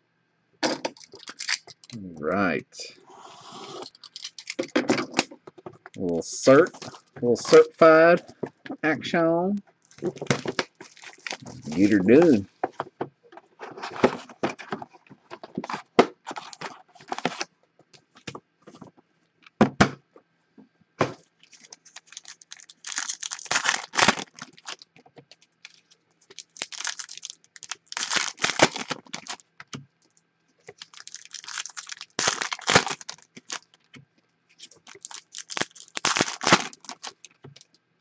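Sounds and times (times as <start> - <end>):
foil packs crinkling and tearing: 1.0 - 2.0, 9.9 - 12.4, 15.4 - 17.5, 21.4 - 24.9, 25.6 - 29.5, 30.6 - 33.9, 34.6 - 37.6.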